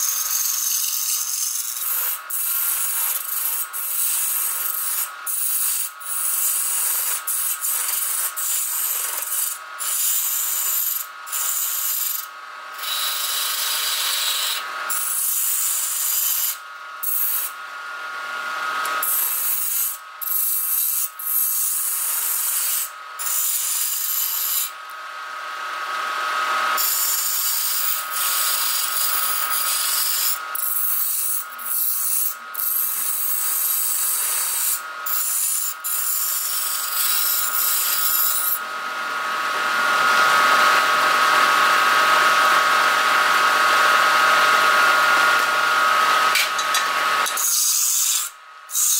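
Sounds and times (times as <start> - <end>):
chisel scraping wood on lathe: 0.0 - 12.2, 12.8 - 17.5, 19.0 - 24.7, 26.8 - 38.6.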